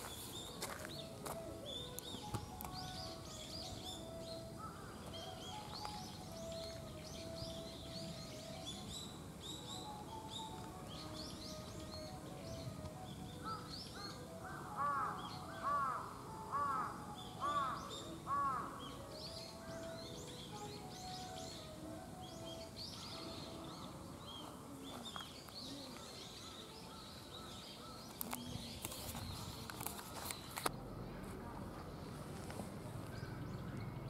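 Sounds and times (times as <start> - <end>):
small birds chirping: 0.0 - 34.0
crow cawing: 14.4 - 18.8.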